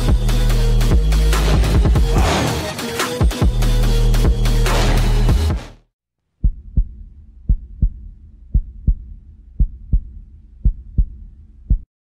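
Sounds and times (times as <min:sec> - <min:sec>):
heartbeat double thumps: 0:06.4 - 0:11.9.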